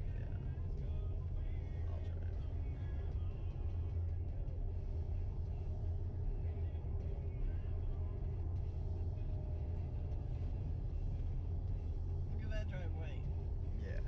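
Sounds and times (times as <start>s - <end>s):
faint background music: 0.0s - 14.0s
road and tyre rumble in car: 0.0s - 14.0s.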